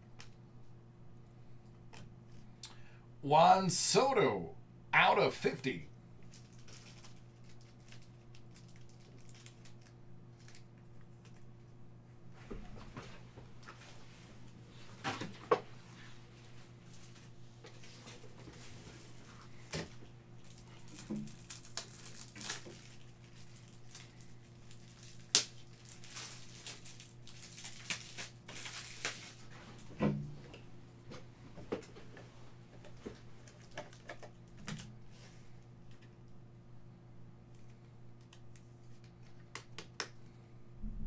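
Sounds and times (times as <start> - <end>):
plastic wrappers crinkling and tearing: 6.2 - 11.5, 19.3 - 29.5, 33.0 - 34.9
steady low hum: 40.1 - 41.0.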